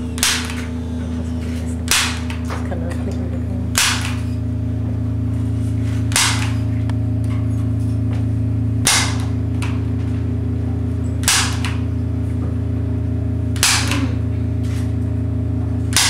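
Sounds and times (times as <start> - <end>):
low droning hum: 0.0 - 16.0
sharp loud cracks: 1.9 - 2.5, 3.7 - 4.4, 6.1 - 6.7, 8.8 - 9.8, 11.2 - 11.9, 13.5 - 14.2.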